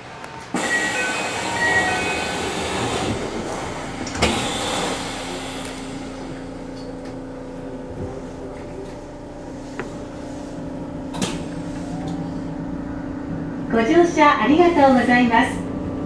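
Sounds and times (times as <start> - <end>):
train doors hissing: 0.5 - 6.4
steady low hum: 2.8 - 16.0.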